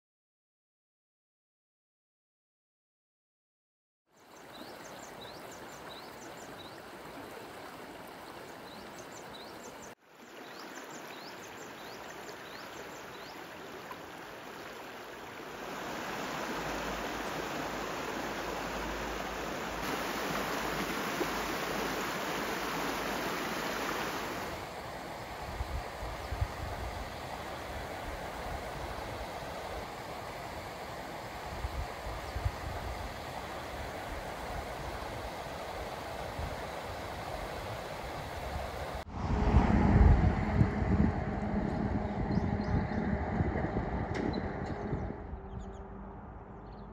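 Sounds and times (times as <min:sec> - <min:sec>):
stream running over stones: 0:04.2 - 0:39.0.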